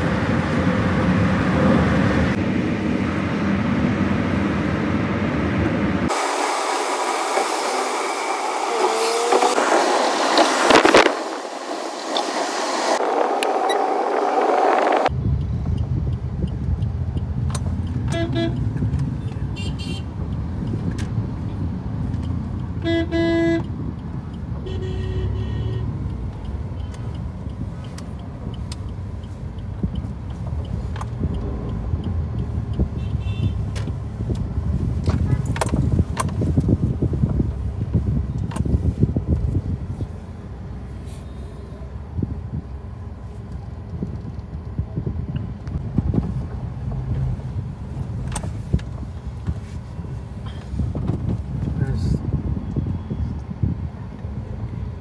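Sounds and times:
road noise inside moving car: 0:00.0 - 0:55.0
vehicle horns tooting: 0:18.1 - 0:18.6, 0:19.4 - 0:20.1, 0:22.8 - 0:23.7, 0:24.6 - 0:26.0, 0:33.0 - 0:33.6.

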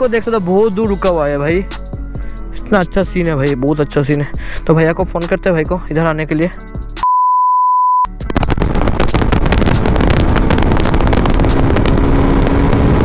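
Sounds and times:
high electronic beep: 0:07.0 - 0:08.2
wind buffeting microphone: 0:08.3 - 0:13.0
motorcycle running: 0:08.6 - 0:13.0.

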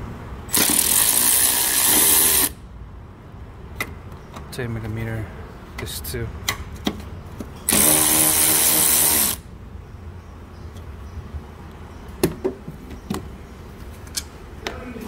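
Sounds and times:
powered ratchet spinning: 0:00.5 - 0:02.6, 0:07.7 - 0:09.4.

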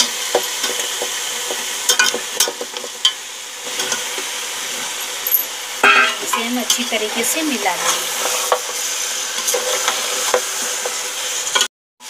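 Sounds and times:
meat sizzling in hot oil: 0:00.0 - 0:11.7
spatula clattering against pot: 0:05.8 - 0:06.8.

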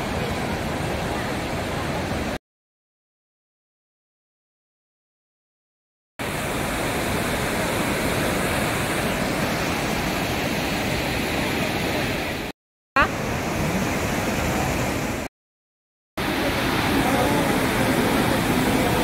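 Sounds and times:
waterfall rushing over rocks: 0:00.0 - 0:02.4, 0:06.2 - 0:12.5, 0:13.1 - 0:15.3, 0:16.2 - 0:19.0.

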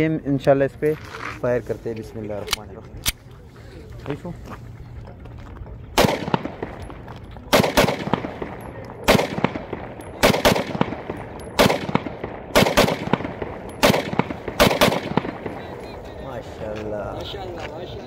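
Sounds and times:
pistol shots with ringing echo: 0:06.0 - 0:15.9.

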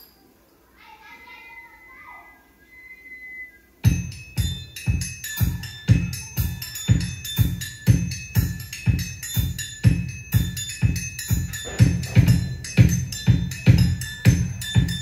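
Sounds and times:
bright pitched percussion: 0:03.8 - 0:15.0
music with heavy bass-drum beat: 0:03.9 - 0:15.0.

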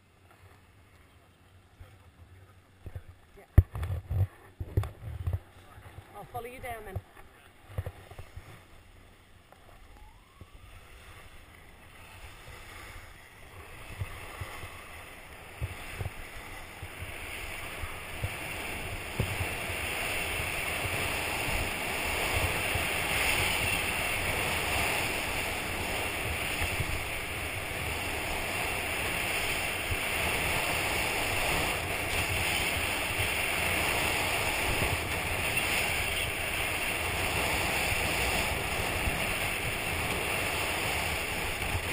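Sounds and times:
wind buffeting microphone: 0:12.1 - 0:41.9
skis hissing over snow: 0:17.5 - 0:41.9.

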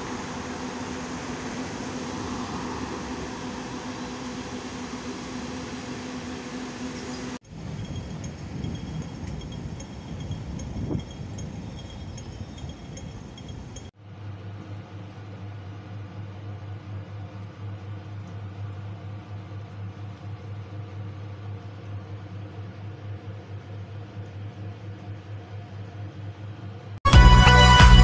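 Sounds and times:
low mechanical hum: 0:00.0 - 0:27.0
low traffic rumble: 0:00.0 - 0:28.0
faint high clinks: 0:07.7 - 0:13.9.

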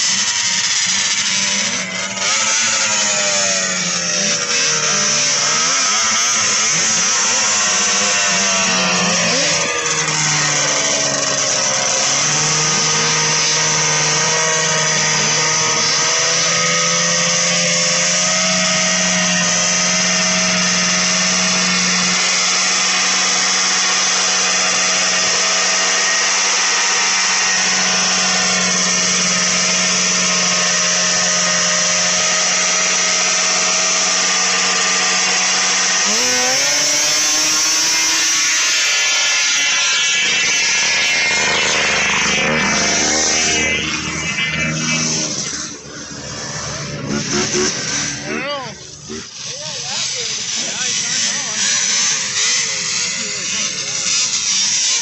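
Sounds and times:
two-stroke snowmobile engines idling: 0:00.0 - 0:38.9, 0:39.9 - 0:51.8
engine throttle blips: 0:40.2 - 0:49.4.

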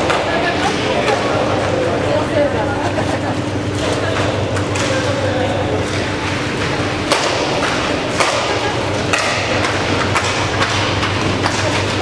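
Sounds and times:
steady low hum: 0:00.0 - 0:12.0
hockey sticks clacking: 0:03.8 - 0:12.0.

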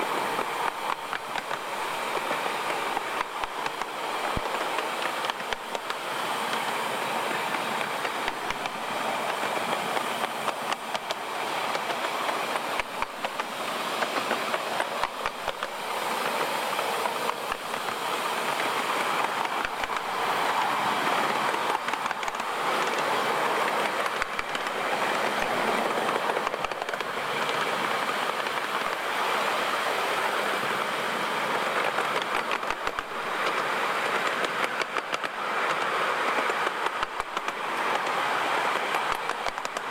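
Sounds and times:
miniature train rumble and rattle: 0:00.0 - 0:39.9
wheel clicks over rail joints: 0:21.2 - 0:29.0, 0:31.8 - 0:39.9.

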